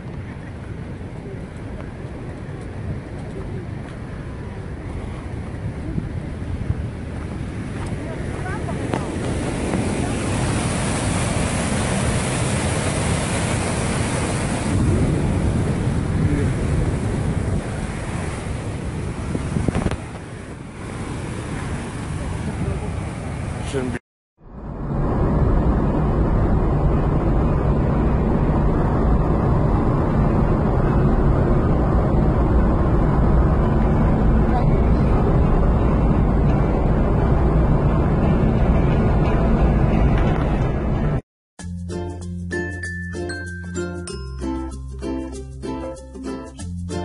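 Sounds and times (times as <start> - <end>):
car road and engine noise: 0.0 - 41.2
wind buffeting microphone: 0.0 - 41.2
river rushing: 7.0 - 24.0.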